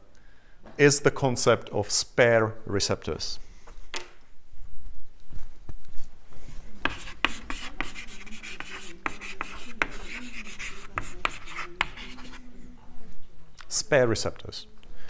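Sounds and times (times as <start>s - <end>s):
chalk writing on a chalkboard: 6.7s - 12.6s.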